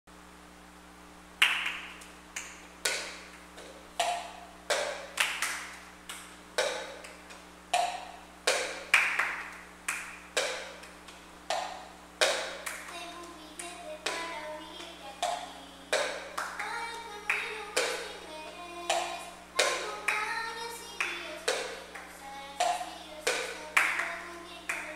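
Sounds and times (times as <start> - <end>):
children clapping: 1.4 - 3.2, 4.0 - 7.2, 8.5 - 10.9, 11.5 - 18.2, 18.9 - 24.9
plastic cups knocking on tiles: 10.4 - 10.8, 15.2 - 16.6, 21.5 - 21.9, 22.6 - 24.1.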